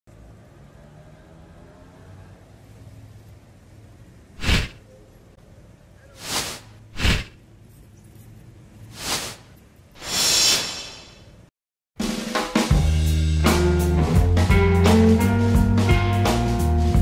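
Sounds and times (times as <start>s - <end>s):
whoosh sound effects: 4.4s - 4.8s, 6.2s - 7.4s, 8.9s - 11.4s
music: 12.0s - 17.0s.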